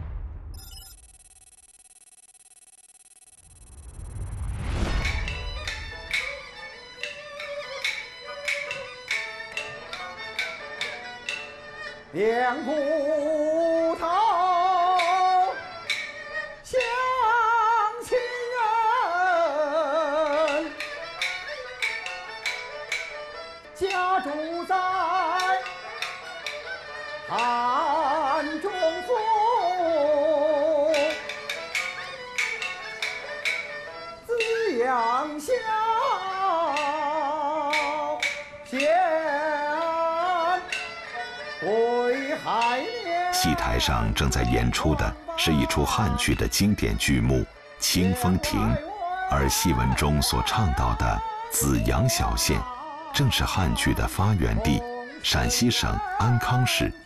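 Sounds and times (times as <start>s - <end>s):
sharp percussion strikes: 3.6s - 9.7s
person singing opera: 12.2s - 15.6s, 16.7s - 20.8s, 23.8s - 25.7s, 27.3s - 31.2s, 34.3s - 40.7s, 41.6s - 46.3s, 47.4s - 53.4s, 54.8s - 56.6s
solo opera singing with vibrato: 34.4s - 40.6s, 48.4s - 53.2s.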